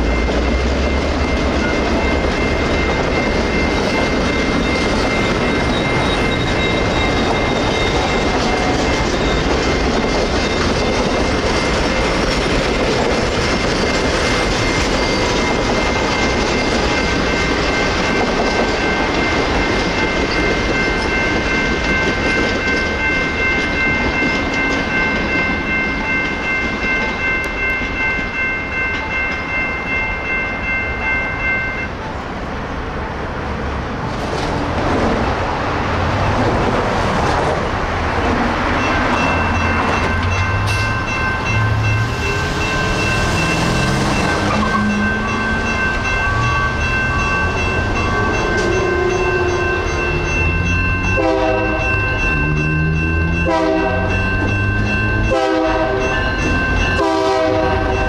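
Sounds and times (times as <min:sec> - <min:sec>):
train wheels clacking over rail joints: 0:00.0 - 0:25.3
electronic crossing bell ringing: 0:00.0 - 0:32.1, 0:38.6 - 0:58.0.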